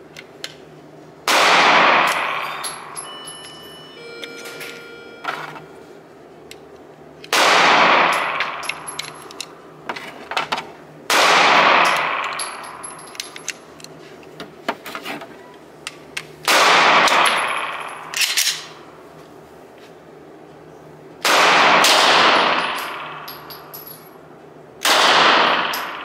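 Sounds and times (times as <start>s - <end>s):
pistol shots echoing indoors: 1.2s - 3.0s, 7.3s - 9.2s, 11.1s - 13.4s, 16.5s - 18.9s, 21.2s - 23.8s, 24.8s - 26.0s
brass casings clinking: 2.0s - 5.8s, 7.9s - 9.6s, 11.6s - 13.8s, 16.9s - 18.8s, 22.0s - 24.2s, 25.4s - 26.0s.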